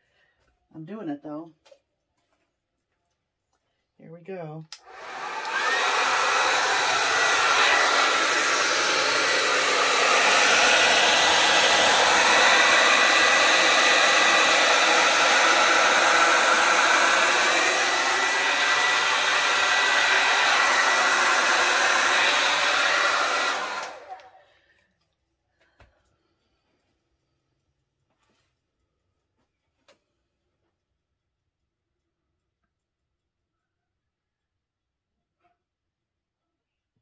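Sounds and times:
hair dryer running: 0:04.8 - 0:24.4.

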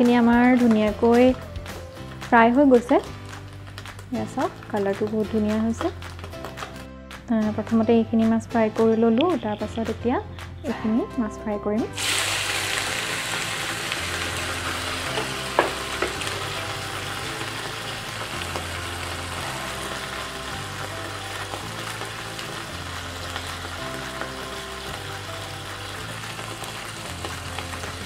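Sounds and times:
fish deep-frying in sizzling oil: 0:02.4 - 0:06.8, 0:12.0 - 0:28.0.

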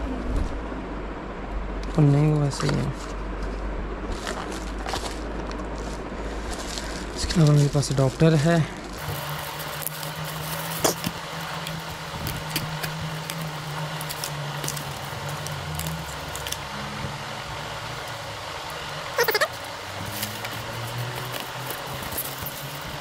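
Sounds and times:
steady low hum: 0:00.0 - 0:23.0
plastic bag crinkling: 0:04.4 - 0:16.7
cardboard box being opened: 0:19.6 - 0:23.0.

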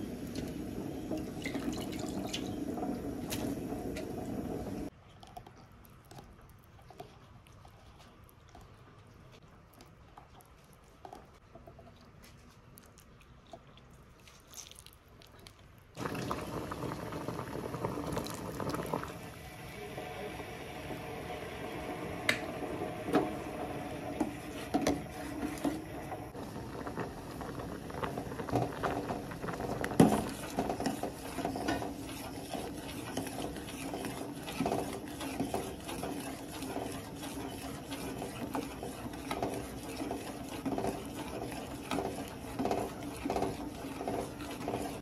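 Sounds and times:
broth boiling: 0:00.0 - 0:10.1, 0:15.4 - 0:45.0
ladle scraping a pot: 0:23.0 - 0:26.4, 0:27.6 - 0:45.0.

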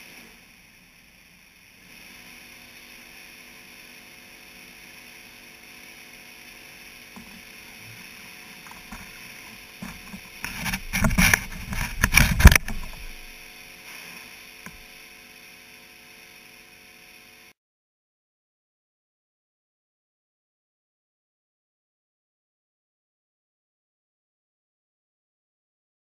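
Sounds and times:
tank pump hum: 0:01.7 - 0:16.7
fish splashing and knocking: 0:09.8 - 0:13.1.

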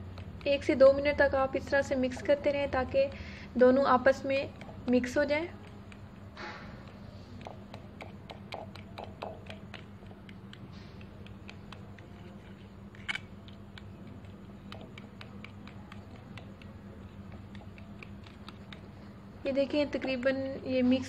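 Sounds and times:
fork clicking against bowl: 0:04.2 - 0:20.5.

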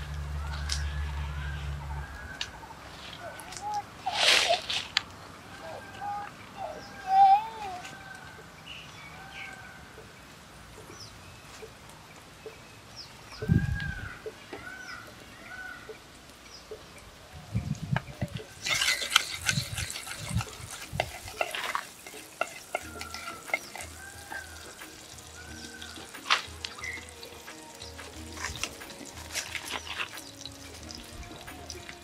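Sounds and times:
birds calling: 0:00.0 - 0:32.0
oil sizzling and crackling: 0:10.0 - 0:32.0
wooden spoon scraping a clay pot: 0:18.5 - 0:32.0.

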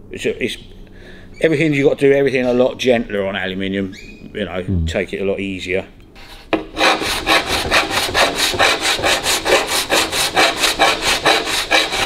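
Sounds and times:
file rasping on sheet metal: 0:06.2 - 0:12.0.

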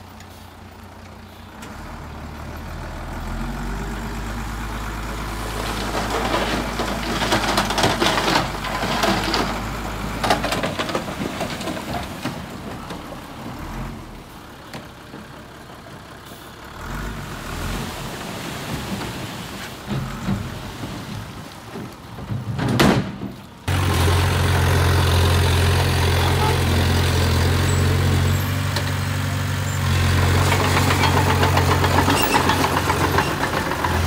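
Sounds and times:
diesel bulldozer engine: 0:00.0 - 0:34.0
soil and rock scraping: 0:05.2 - 0:13.1, 0:25.9 - 0:34.0.

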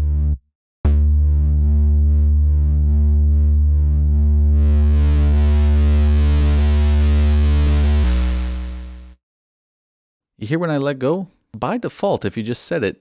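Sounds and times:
distorted synth bass note: 0:00.0 - 0:09.2.

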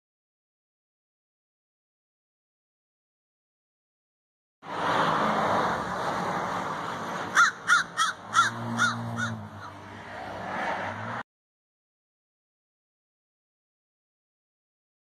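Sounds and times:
passing road traffic: 0:04.6 - 0:11.3
crow cawing: 0:07.3 - 0:09.9.

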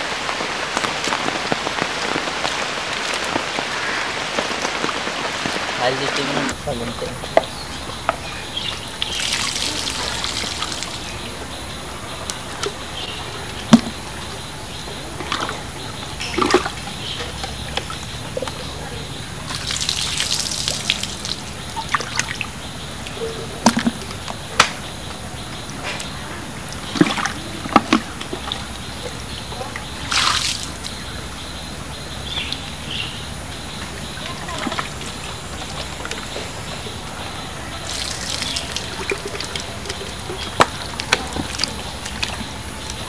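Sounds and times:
muddy water splashing: 0:00.0 - 0:43.0
water drips and trickles: 0:00.0 - 0:43.0
sharp clicks or splashes: 0:13.5 - 0:14.3, 0:19.5 - 0:31.0, 0:37.8 - 0:43.0.

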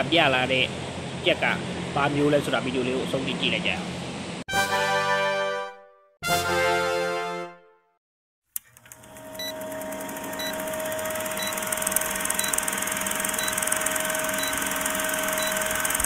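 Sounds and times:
logo jingle: 0:04.5 - 0:07.8.

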